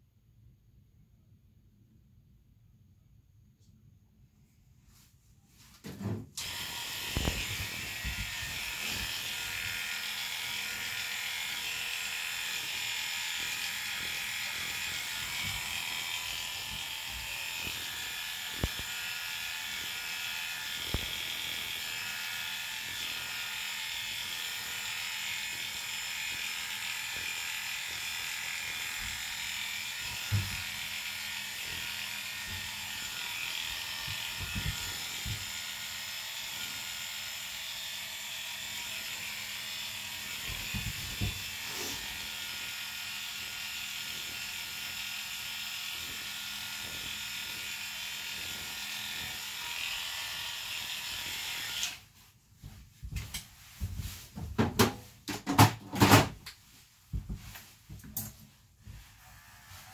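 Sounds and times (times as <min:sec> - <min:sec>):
electric clippers buzzing: 0:06.0 - 0:52.1.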